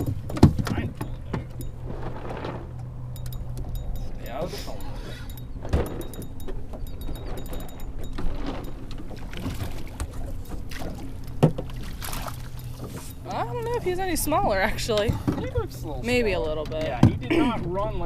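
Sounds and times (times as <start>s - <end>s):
knocks on boat: 0.0s - 1.5s, 5.6s - 11.8s, 14.9s - 15.7s
water slapping against boat hull: 0.0s - 2.8s, 5.6s - 17.3s
steady low hum: 0.0s - 17.6s.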